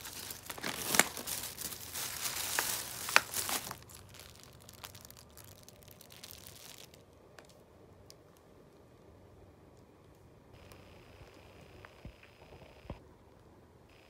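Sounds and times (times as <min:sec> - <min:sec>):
plastic bags rustling: 0:00.0 - 0:07.6.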